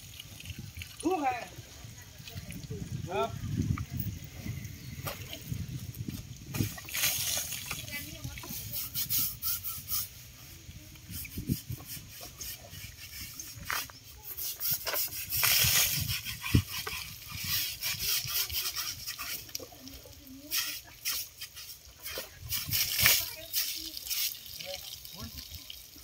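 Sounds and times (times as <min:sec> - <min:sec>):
water splashing: 0:06.3 - 0:09.4, 0:15.0 - 0:26.0.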